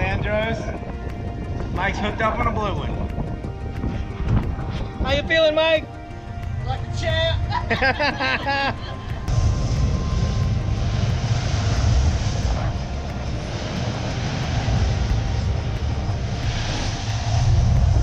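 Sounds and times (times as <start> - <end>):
boat engines rumbling: 0.0 - 18.0
water rushing and splashing: 9.1 - 18.0.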